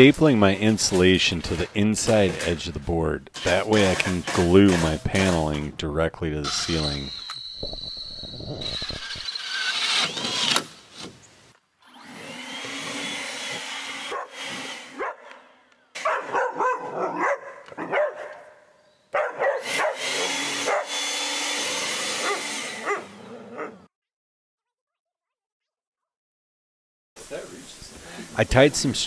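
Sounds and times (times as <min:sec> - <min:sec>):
dog barking and whining: 0:14.1 - 0:14.4, 0:15.0 - 0:15.4, 0:16.0 - 0:21.0, 0:22.2 - 0:23.9.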